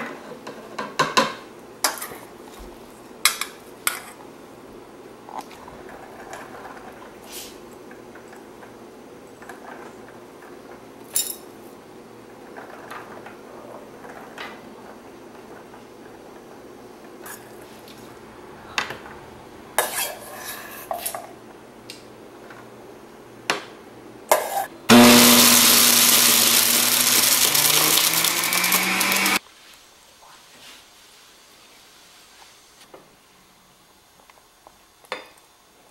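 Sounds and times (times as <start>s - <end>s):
electric blender running: 24.9s - 29.4s.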